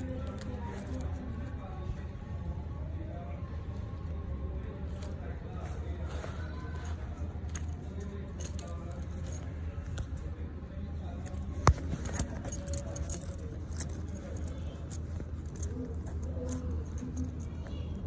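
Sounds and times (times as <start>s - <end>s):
metal buckles clinking and rattling: 0.0s - 1.5s, 4.8s - 10.3s, 11.0s - 18.0s.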